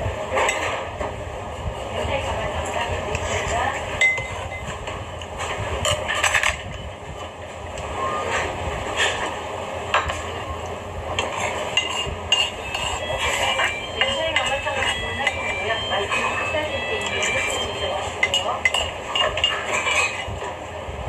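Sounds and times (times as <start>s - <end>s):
low background hum: 0.0s - 21.0s.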